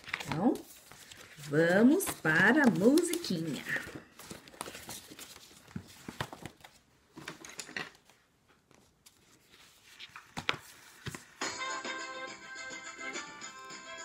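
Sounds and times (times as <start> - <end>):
clicks taps and rustles of handling: 2.0 - 8.2
song playing: 11.4 - 14.0.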